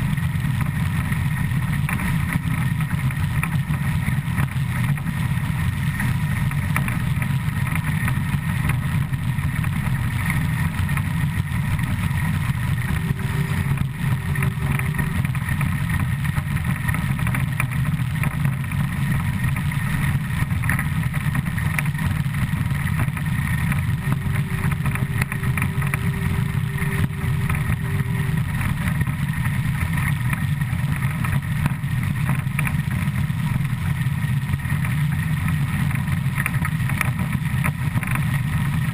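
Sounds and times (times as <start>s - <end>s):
steam locomotive running gear: 0.0s - 38.9s
faint held tone: 12.4s - 16.0s, 22.9s - 30.2s.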